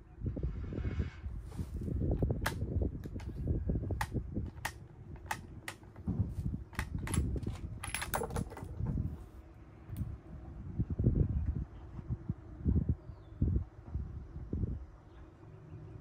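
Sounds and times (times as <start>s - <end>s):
rifle bolt clicking: 4.0s - 5.8s, 6.8s - 8.2s.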